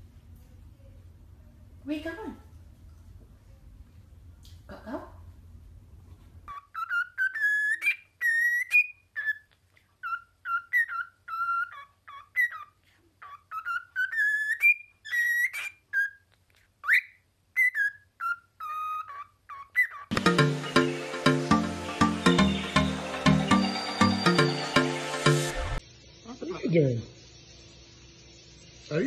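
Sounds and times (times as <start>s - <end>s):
cockatiel whistling: 6.5s - 20.2s.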